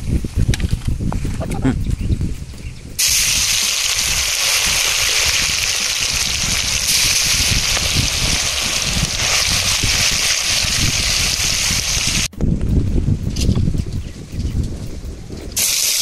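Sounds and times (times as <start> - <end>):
fish deep-frying in hot oil: 3.0 - 12.3, 15.6 - 16.0.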